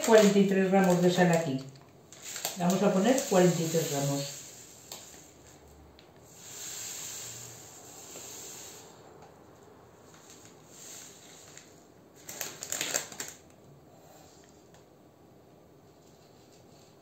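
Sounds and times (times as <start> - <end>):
plastic bag crackling: 0.0 - 5.6, 10.2 - 13.6
salt pouring into glass bowl: 2.2 - 5.4, 6.3 - 8.9.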